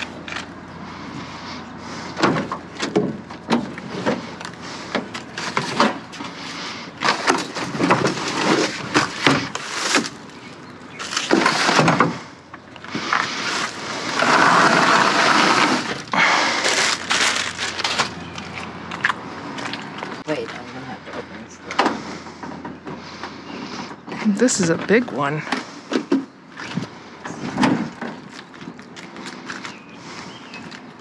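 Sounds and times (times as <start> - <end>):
scraping or rustling: 0.0 - 20.2.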